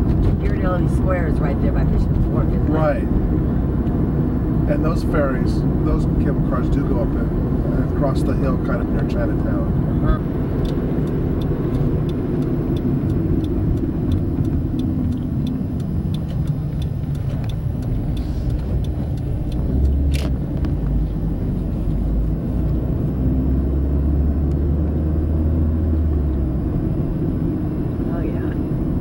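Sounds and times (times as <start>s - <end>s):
car engine and road rumble: 0.0s - 29.0s
sharp click: 17.2s - 20.8s.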